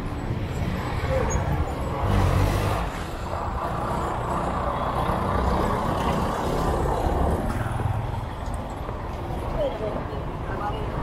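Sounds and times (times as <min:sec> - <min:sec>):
vehicle engines passing: 0:00.0 - 0:11.0.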